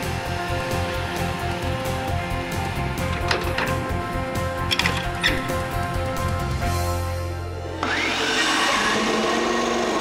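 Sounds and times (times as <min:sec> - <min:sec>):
music with sustained tones: 0:00.0 - 0:10.0.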